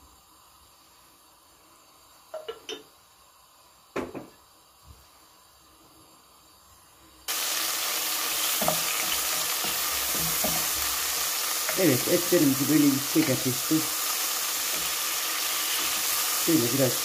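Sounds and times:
meat sizzling in hot oil: 7.2s - 17.0s
wooden spoon stirring: 8.4s - 13.8s.

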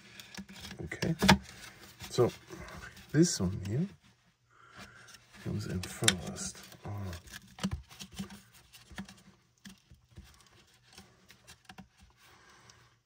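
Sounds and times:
plastic and fabric clicks and rustling: 0.0s - 13.0s.

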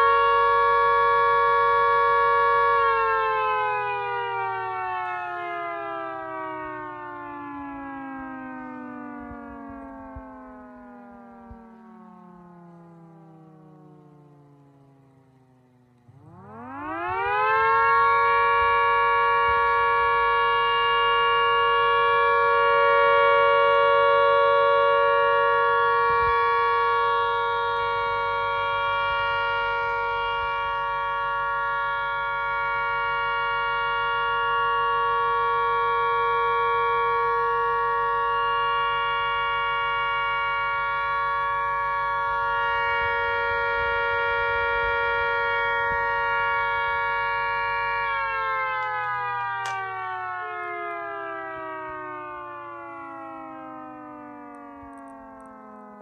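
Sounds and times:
two-note air-raid siren: 0.0s - 56.0s.

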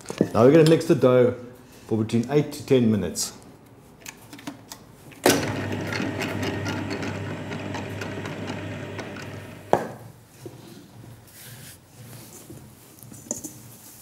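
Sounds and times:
mixer starting clunk: 5.2s - 9.8s
dough mixer humming: 5.3s - 9.7s
mixer switching off click: 5.3s - 9.7s.

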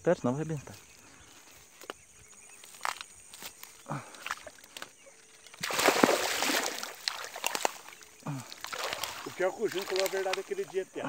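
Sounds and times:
weeds rustling and snapping: 1.7s - 10.7s
fish thrashing in water: 5.4s - 10.9s.

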